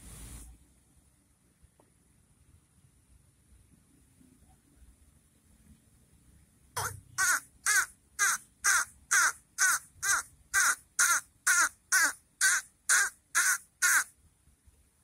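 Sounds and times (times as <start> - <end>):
bird harsh repeated call: 6.8 - 14.2.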